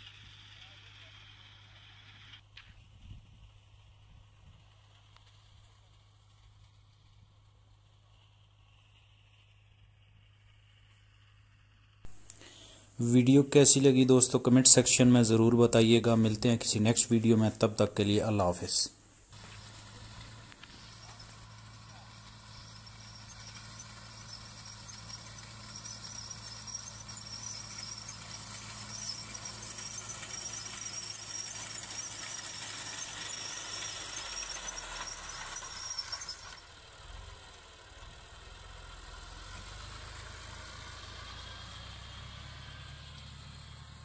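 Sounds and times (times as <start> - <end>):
tractor engine running: 0.0 - 44.0
reaper squealing whine: 19.4 - 36.7.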